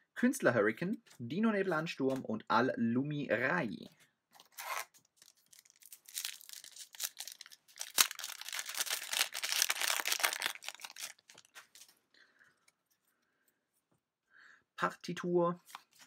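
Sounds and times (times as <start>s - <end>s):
foil wrapper tearing and crinkling: 4.4s - 12.0s.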